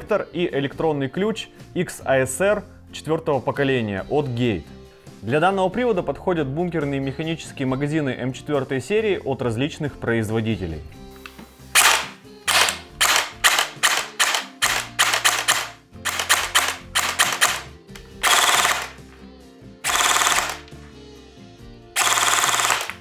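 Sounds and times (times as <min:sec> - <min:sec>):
background music: 0:00.0 - 0:23.0
airsoft gun shots: 0:11.8 - 0:19.0, 0:19.9 - 0:20.6, 0:22.0 - 0:23.0.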